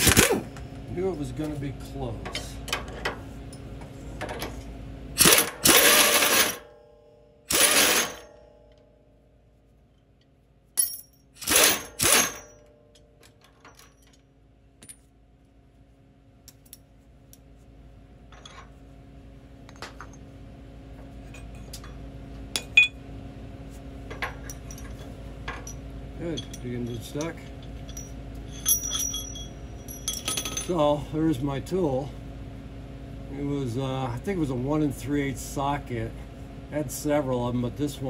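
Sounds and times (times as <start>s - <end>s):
low steady hum: 0.0s - 38.0s
metal tool parts clinking: 7.5s - 8.4s, 10.8s - 14.2s, 24.1s - 30.8s.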